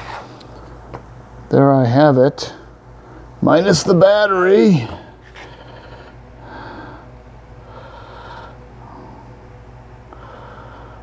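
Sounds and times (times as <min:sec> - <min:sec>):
steady low hum: 0:00.0 - 0:11.0
man breathing through nose: 0:05.2 - 0:09.4, 0:10.0 - 0:11.0.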